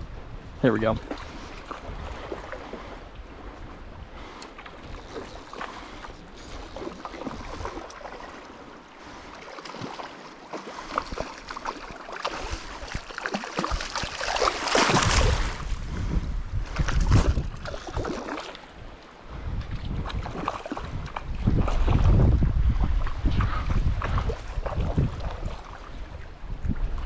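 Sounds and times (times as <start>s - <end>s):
river water running over rocks: 4.7s - 15.6s.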